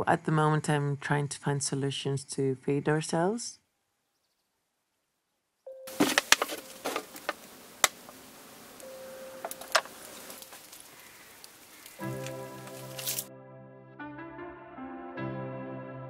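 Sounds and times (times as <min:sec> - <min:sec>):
faint steady buzz: 0:05.7 - 0:12.9
water sloshing: 0:05.9 - 0:13.2
plastic bottle crackling: 0:05.9 - 0:13.3
background music: 0:12.0 - 0:16.0.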